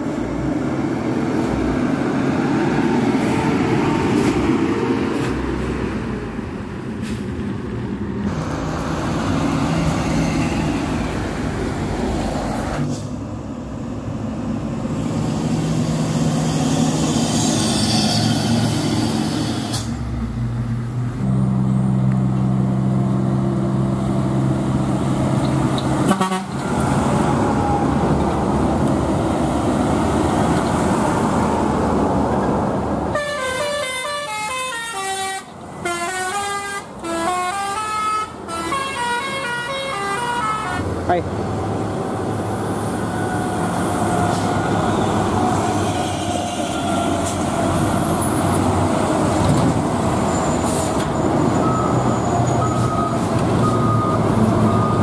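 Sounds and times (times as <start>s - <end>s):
diesel trucks driving past: 0.0s - 55.0s
truck horn blasts: 26.0s - 26.6s, 33.1s - 40.9s.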